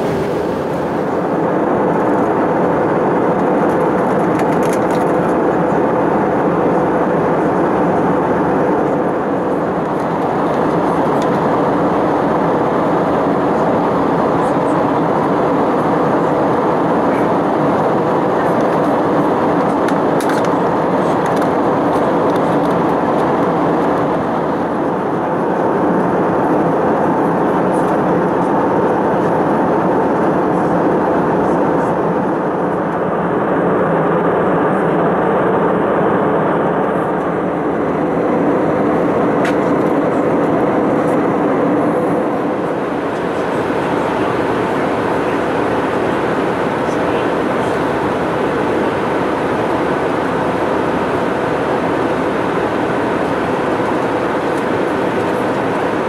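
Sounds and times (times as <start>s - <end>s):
airflow rush: 0.0s - 4.5s, 31.9s - 56.0s
aircraft engine drone: 0.0s - 56.0s.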